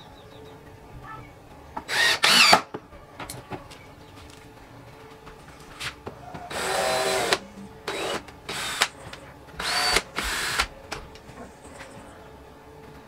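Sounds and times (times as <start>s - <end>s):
cordless drill motor whine: 1.9s - 2.6s, 6.5s - 8.9s, 9.6s - 10.7s.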